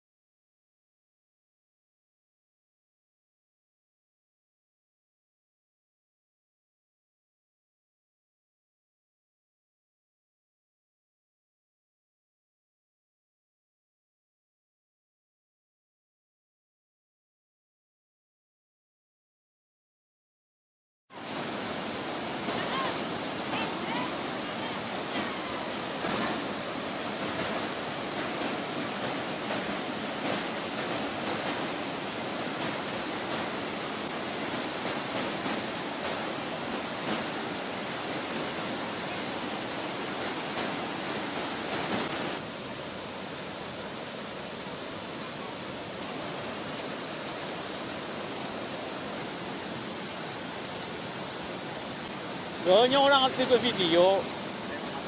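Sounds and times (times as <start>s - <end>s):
river water rushing over rocks: 21.1s - 55.0s
waterfall: 21.1s - 55.0s.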